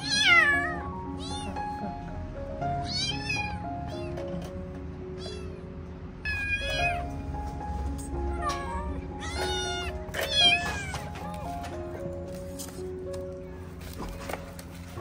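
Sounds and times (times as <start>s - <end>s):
kittens meowing: 0.0s - 2.0s, 2.8s - 4.2s, 5.2s - 5.7s, 6.3s - 7.2s, 8.1s - 11.2s
background music: 0.0s - 15.0s.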